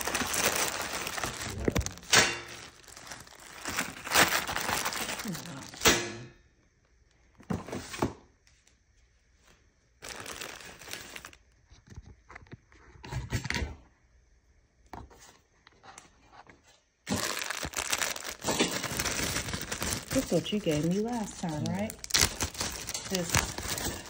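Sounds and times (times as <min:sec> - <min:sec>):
plastic bags crinkling: 0:00.0 - 0:05.8, 0:10.0 - 0:11.4, 0:17.1 - 0:24.0.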